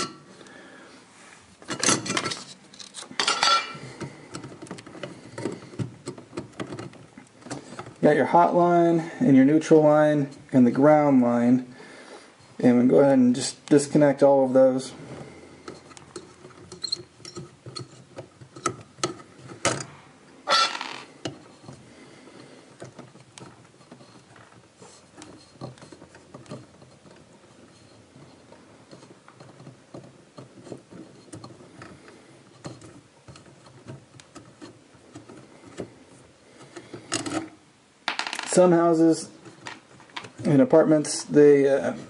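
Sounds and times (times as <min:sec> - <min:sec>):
faint clicks and scrapes of wires: 0:01.2 - 0:09.0, 0:13.4 - 0:19.9, 0:20.5 - 0:37.6.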